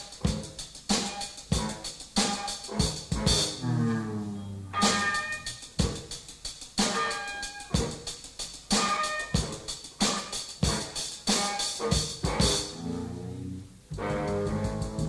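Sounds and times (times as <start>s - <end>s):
rough rock music: 0.0s - 13.2s, 13.8s - 15.0s
pitched tone sliding down: 3.4s - 5.7s, 12.7s - 14.6s.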